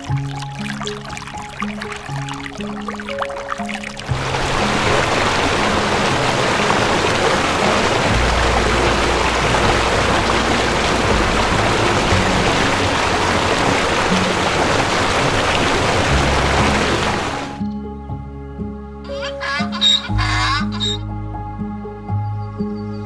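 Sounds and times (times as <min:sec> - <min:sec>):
waterfall rushing: 0:00.0 - 0:17.6
low sustained musical notes: 0:00.0 - 0:19.1.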